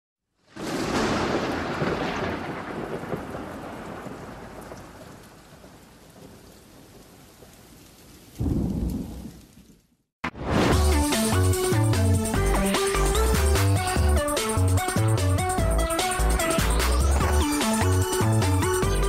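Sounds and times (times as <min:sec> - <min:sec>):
rain hissing: 0:00.4 - 0:19.0
thunder rumbling: 0:00.6 - 0:09.7, 0:13.8 - 0:19.0.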